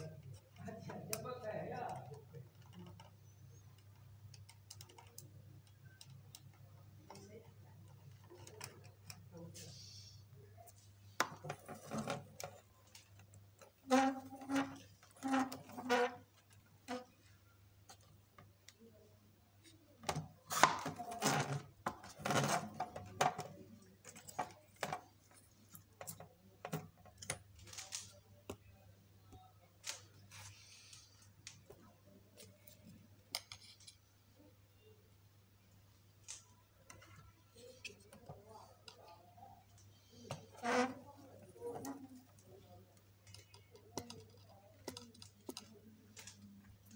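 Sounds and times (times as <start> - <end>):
wooden model clicking and rattling: 0.2 - 9.5, 40.6 - 46.9.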